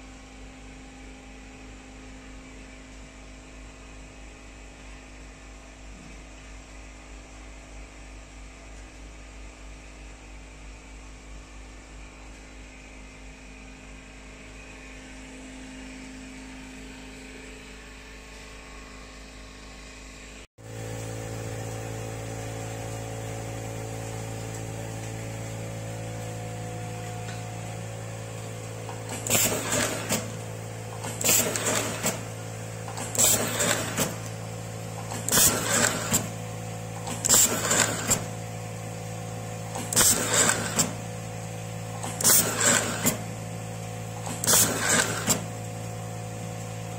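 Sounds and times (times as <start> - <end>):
cable-tie machine humming: 20.6 - 46.9
short loud bursts of machine: 28.8 - 45.6.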